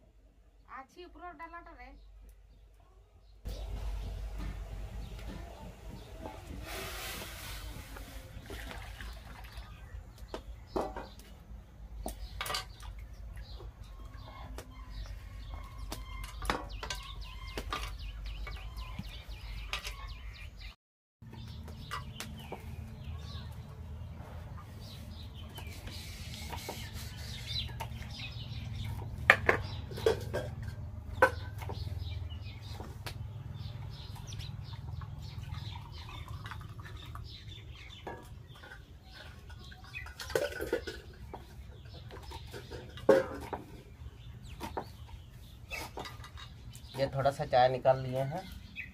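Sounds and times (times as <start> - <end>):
pots and plates clinking: 38.0 - 43.7.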